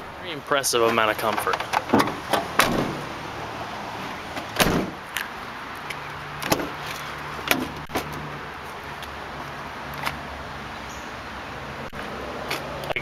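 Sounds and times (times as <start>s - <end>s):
heavy van door thud: 1.6s - 3.2s, 4.4s - 5.0s.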